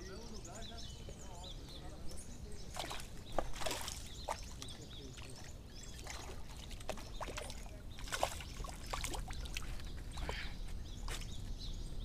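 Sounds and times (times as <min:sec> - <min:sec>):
water splashing and dripping: 0:02.7 - 0:10.4.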